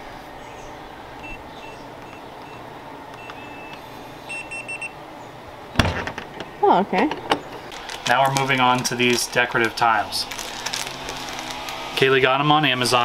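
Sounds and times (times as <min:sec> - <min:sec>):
keypad beeps: 0:01.2 - 0:05.0
longer keypad tone: 0:01.2 - 0:05.0.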